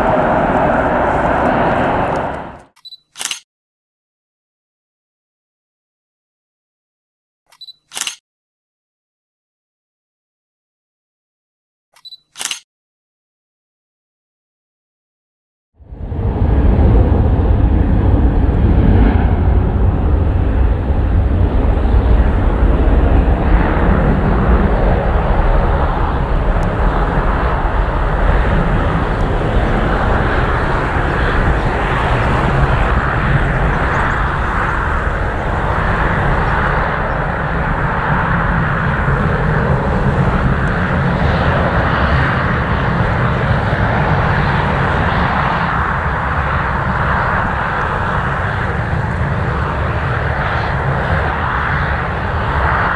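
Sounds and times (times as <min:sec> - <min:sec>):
high rushing engine tone: 0:00.0 - 0:02.7, 0:15.8 - 0:52.7
jet engines rumbling: 0:00.0 - 0:02.8, 0:15.8 - 0:52.9.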